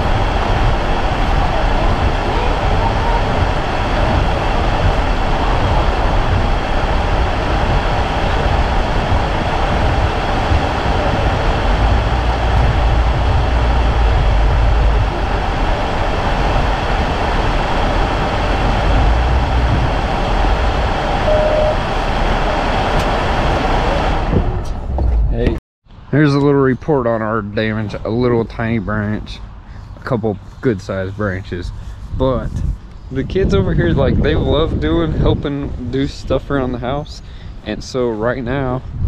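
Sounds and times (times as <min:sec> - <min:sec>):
vehicle driving in rain: 0:00.0 - 0:24.5
wind buffeting microphone: 0:00.0 - 0:39.0.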